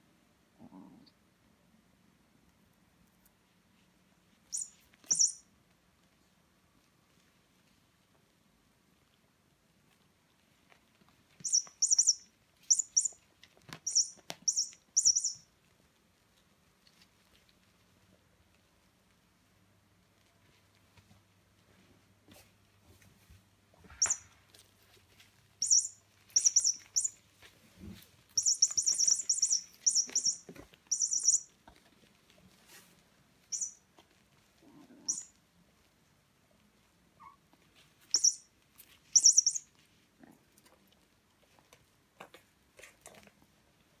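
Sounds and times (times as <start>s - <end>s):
squeaky toy squeaking: 4.5s - 5.4s, 11.4s - 13.2s, 13.8s - 15.4s, 25.6s - 27.2s, 28.4s - 31.5s, 38.1s - 38.4s, 39.2s - 39.6s.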